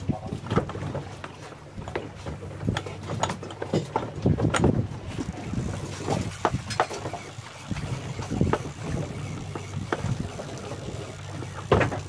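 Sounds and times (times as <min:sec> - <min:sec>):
boat engine humming: 0:00.0 - 0:12.0
wind on microphone: 0:04.0 - 0:12.0.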